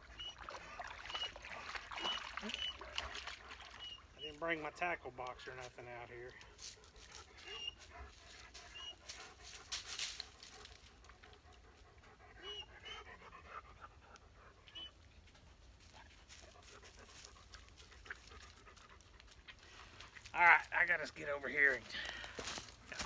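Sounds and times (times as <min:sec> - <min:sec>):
dog panting: 0:06.3 - 0:20.3.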